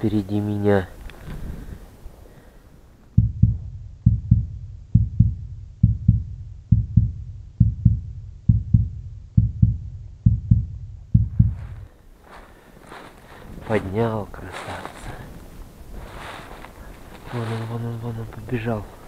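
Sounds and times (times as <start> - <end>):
heartbeat double thump: 3.1 - 11.9.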